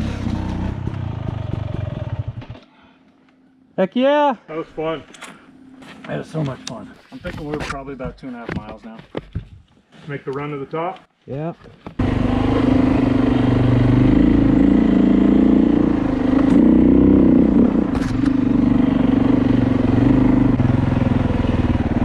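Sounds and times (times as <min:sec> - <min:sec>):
dirt bike engine running: 0:00.0 - 0:02.6, 0:12.0 - 0:22.0.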